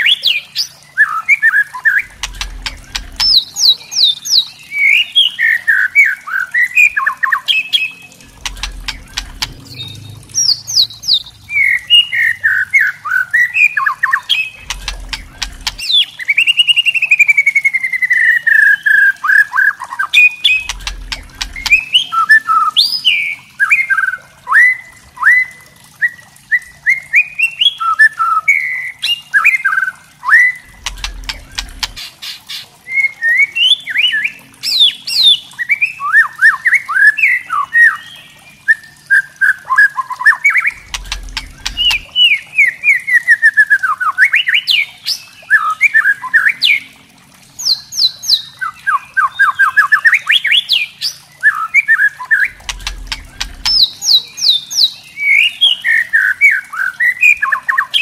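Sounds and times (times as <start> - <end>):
bird rattle calls: 2.1 - 3.6, 8.2 - 11.7, 14.6 - 15.9, 20.5 - 21.9, 30.6 - 32.7, 40.8 - 42.2, 52.5 - 54.1.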